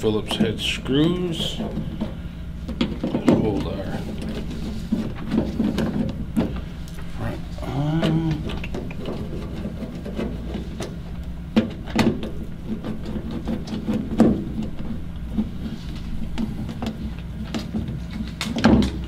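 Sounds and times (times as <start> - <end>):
steady low hum: 0.0 - 19.0
plastic knocks: 16.3 - 19.0.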